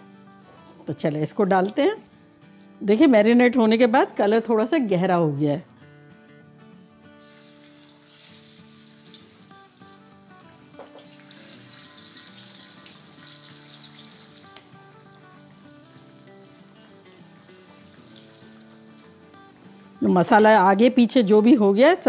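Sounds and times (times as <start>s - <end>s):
soft background music: 0.0s - 22.0s
fish sizzling in hot oil: 7.2s - 20.4s.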